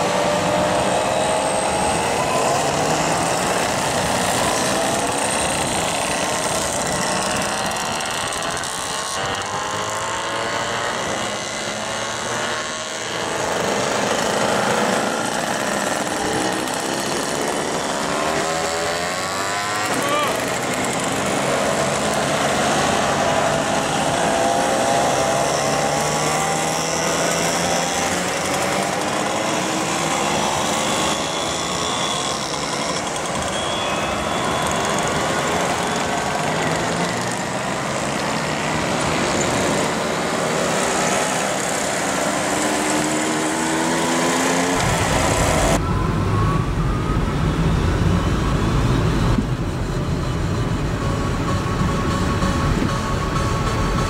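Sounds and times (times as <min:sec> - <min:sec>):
close engine and wind rumble: 0:00.0 - 0:54.0.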